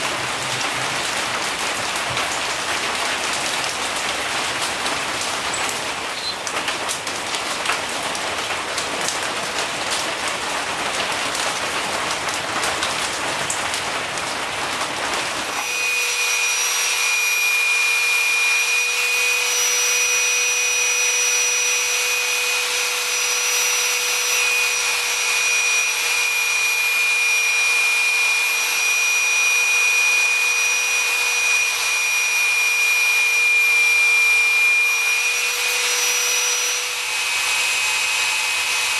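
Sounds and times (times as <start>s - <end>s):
rain on a metal roof: 0.0s - 15.7s
belt sander whining: 15.5s - 38.9s.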